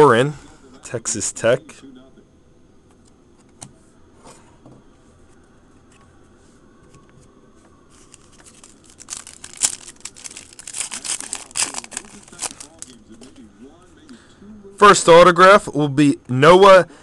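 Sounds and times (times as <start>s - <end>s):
foil wrapper tearing and crinkling: 7.9s - 13.0s.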